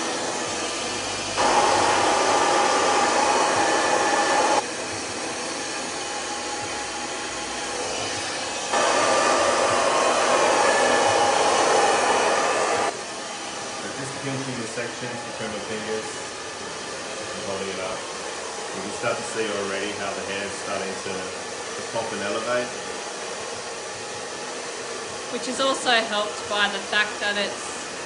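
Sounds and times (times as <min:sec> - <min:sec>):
hair dryer blowing: 0:00.0 - 0:28.0.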